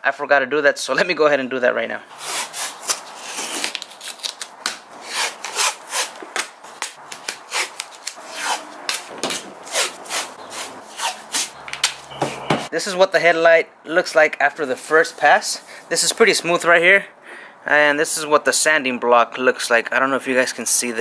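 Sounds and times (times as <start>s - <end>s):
sanding block rasping on plastic: 9.6s - 11.5s.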